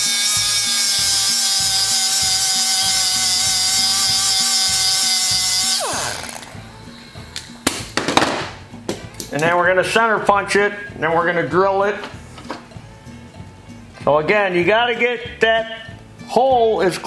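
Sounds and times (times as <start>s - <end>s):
rotary tool grinding metal: 0.0s - 6.6s.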